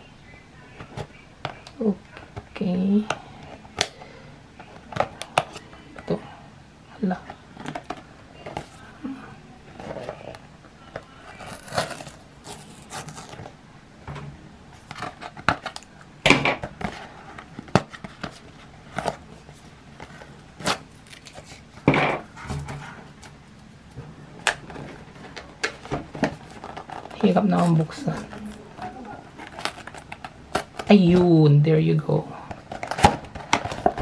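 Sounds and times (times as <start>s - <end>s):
cardboard tearing and snapping: 11.4s - 13.5s.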